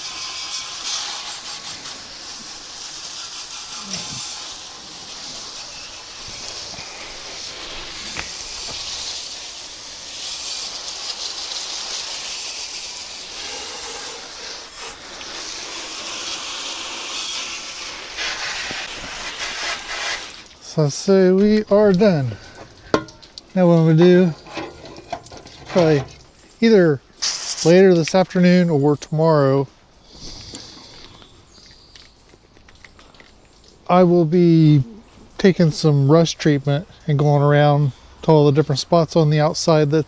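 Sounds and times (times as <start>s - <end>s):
hose spraying water on metal: 0.0s - 26.4s, 27.2s - 28.6s.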